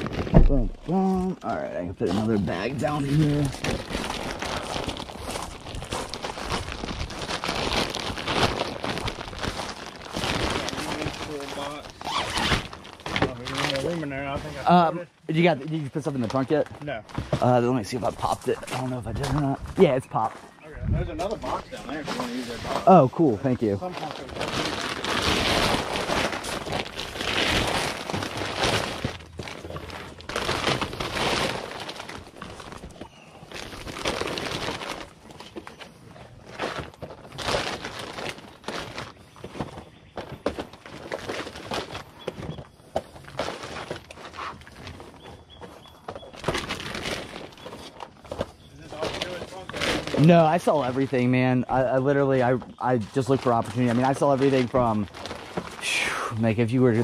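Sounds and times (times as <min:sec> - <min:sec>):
plastic bag rustling: 0:00.0 - 0:00.9, 0:02.0 - 0:14.6, 0:15.3 - 0:57.0.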